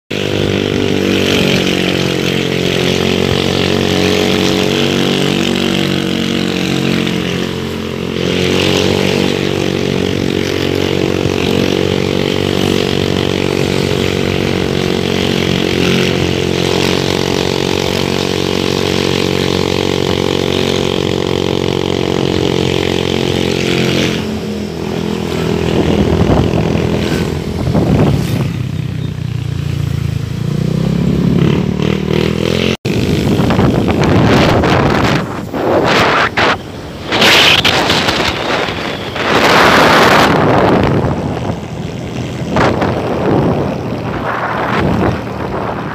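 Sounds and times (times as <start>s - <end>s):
motorcycle engine running: 0.1s - 45.9s.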